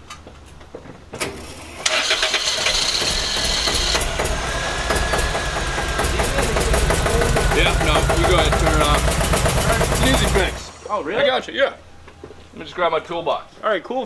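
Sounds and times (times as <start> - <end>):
car engine starting: 1.4 - 11.1
car engine clattering: 1.9 - 10.9.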